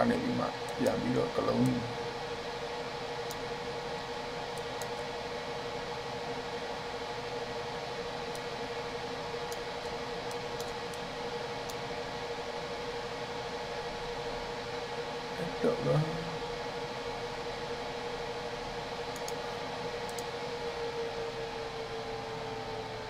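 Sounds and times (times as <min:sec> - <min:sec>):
low hum: 0:00.0 - 0:23.0
faint clicks: 0:19.1 - 0:19.4.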